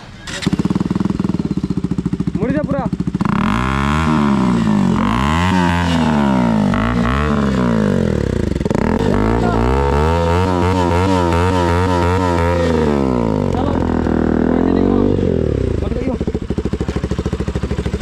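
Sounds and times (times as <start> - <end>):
quick throttle blips: 0.0 - 7.4
motorcycle engine revving: 0.0 - 18.0.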